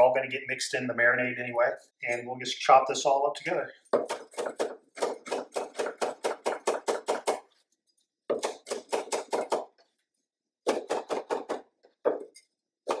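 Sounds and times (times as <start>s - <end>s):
cleaver chopping on wooden board: 3.9s - 7.5s, 8.3s - 9.8s, 10.6s - 13.0s.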